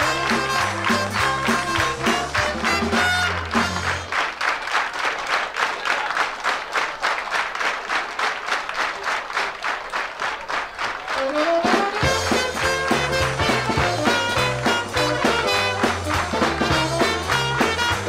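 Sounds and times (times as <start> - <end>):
live band playing swing tune: 0.0 - 4.4, 11.0 - 18.0
audience applause: 0.0 - 18.0.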